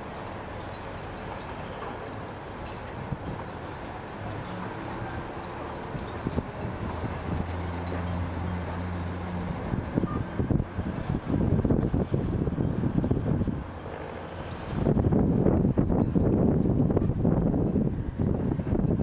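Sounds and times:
wind buffeting microphone: 5.2 - 8.4, 9.6 - 19.0.

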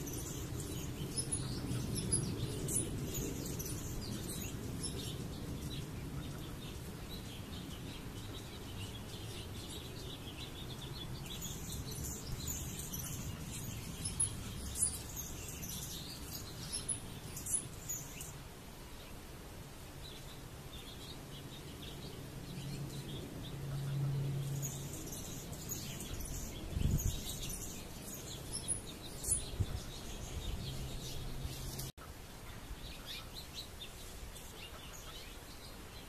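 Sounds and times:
small birds chirping: 0.0 - 36.0.

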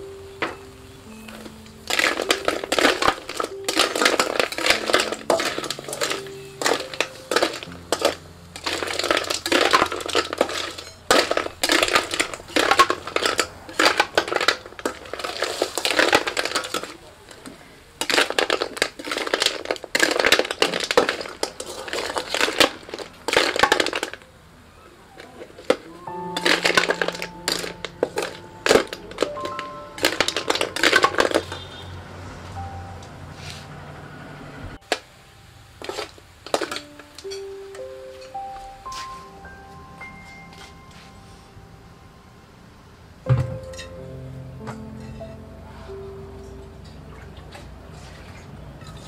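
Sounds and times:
shells clattering in metal wok: 1.8 - 17.4, 18.0 - 24.2, 26.4 - 31.5, 35.8 - 37.4.

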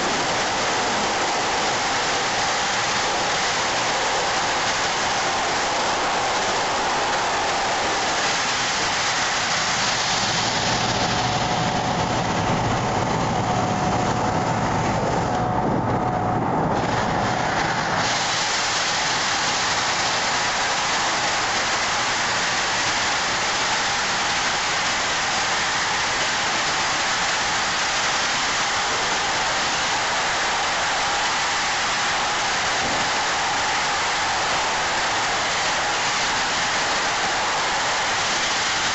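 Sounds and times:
sandblaster nozzle hissing: 0.0 - 12.8, 16.8 - 38.9
low hum: 8.8 - 18.8.

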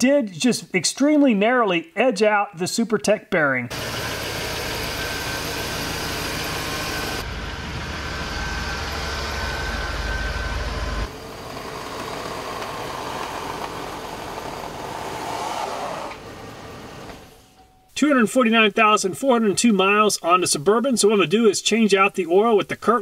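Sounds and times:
suv engine running: 3.7 - 17.4.

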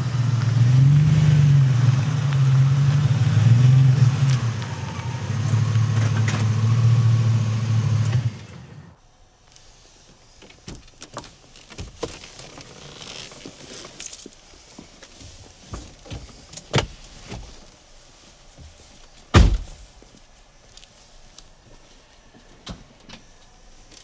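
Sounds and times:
rustling in car seats: 8.1 - 24.0
car door thud: 19.3 - 19.8.

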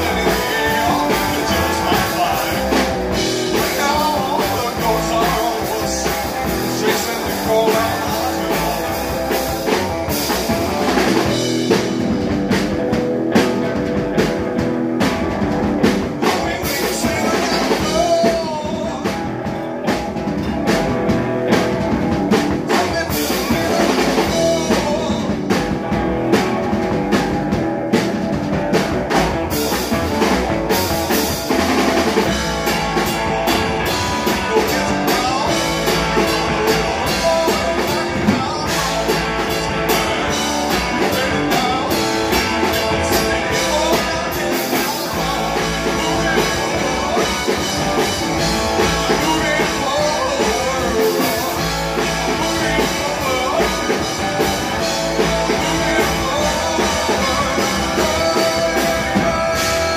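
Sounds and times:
man singing into microphone: 0.0 - 9.2, 16.2 - 19.4, 22.6 - 25.6, 33.8 - 59.9
drum kit beat: 0.0 - 59.9
electric guitar: 0.0 - 59.9.

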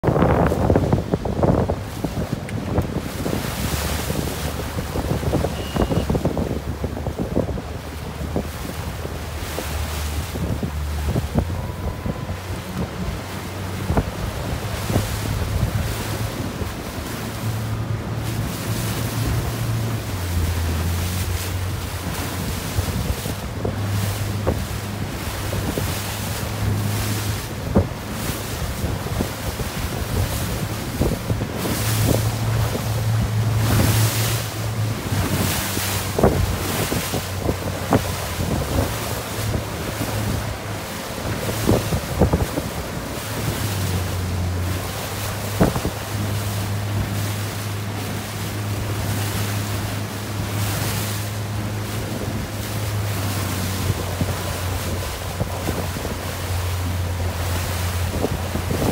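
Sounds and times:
low motor hum: 0.0 - 58.9
water slapping hull: 0.0 - 58.9
waves breaking: 0.0 - 58.9
wind buffeting microphone: 0.0 - 58.9.

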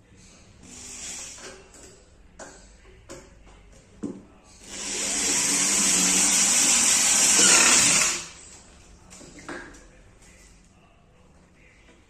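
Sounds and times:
electric drill running: 4.6 - 8.4.

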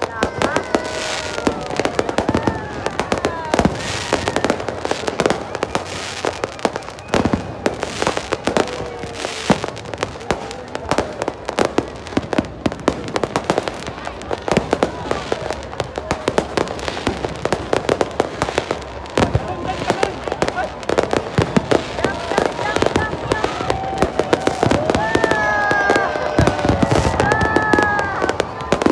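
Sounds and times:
fireworks bursting with bangs: 0.0 - 28.9
fireworks crackling: 0.0 - 28.9
falling firework whistles: 3.5 - 9.8.

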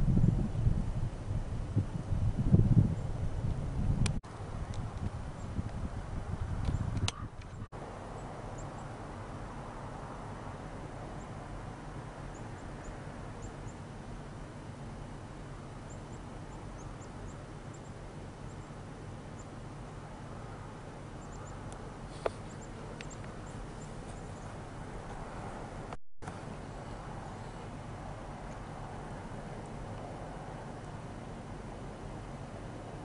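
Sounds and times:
low outdoor rumble and hiss: 0.0 - 33.0
small birds chirping: 12.3 - 13.9, 15.9 - 20.0, 21.2 - 24.6.

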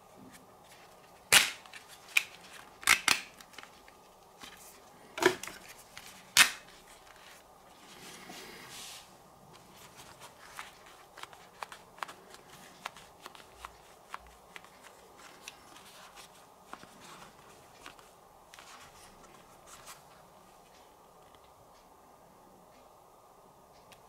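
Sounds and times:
headphones handling clicks and taps: 9.8 - 19.9.

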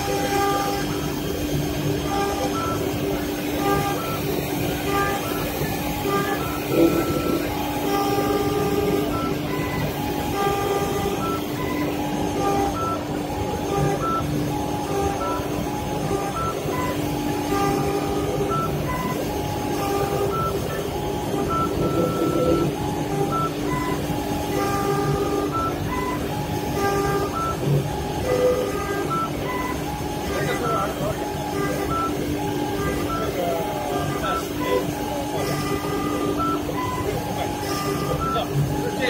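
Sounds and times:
wood lathe machine hum: 0.0 - 36.8
short high beeps: 27.2 - 39.0.

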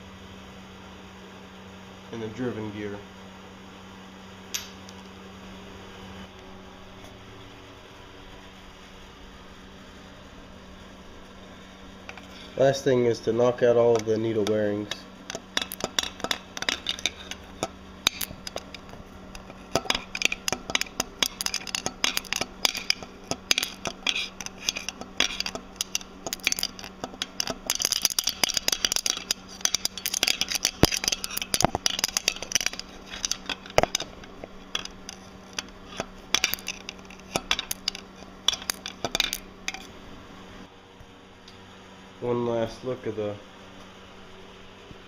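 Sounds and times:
needle rollers rattling on steel: 12.1 - 39.9
metallic tapping and clinking: 13.8 - 39.9.

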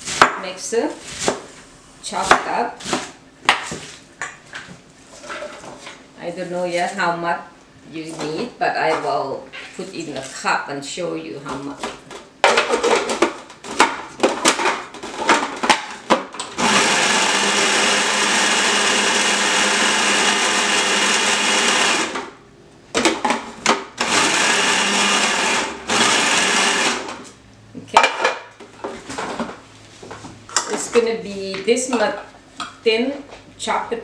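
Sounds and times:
food processor chopping: 13.2 - 22.3, 23.1 - 27.2.

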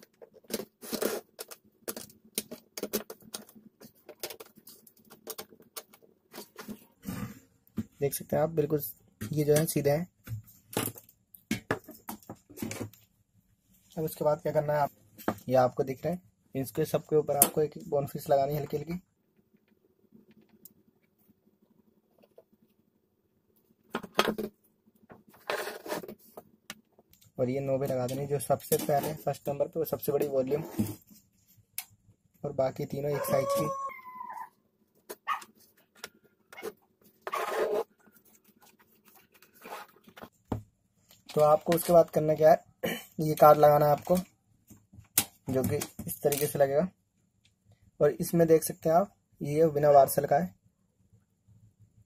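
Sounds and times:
plastic knobs clicking and rubbing: 0.0 - 6.8, 41.1 - 42.5.

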